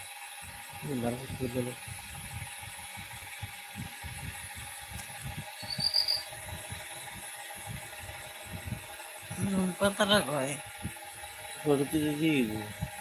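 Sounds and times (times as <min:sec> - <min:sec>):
short high chirp: 0:05.6 - 0:06.2.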